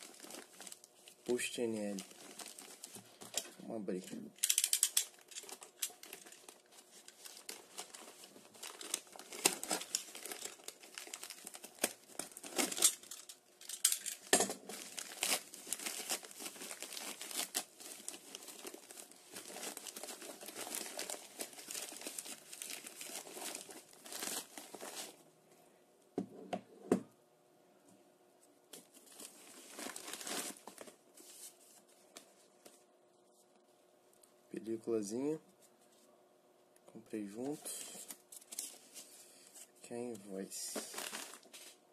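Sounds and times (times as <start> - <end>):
plastic packaging crinkling: 0.0 - 25.2, 28.8 - 31.8, 37.4 - 39.7, 40.6 - 41.8.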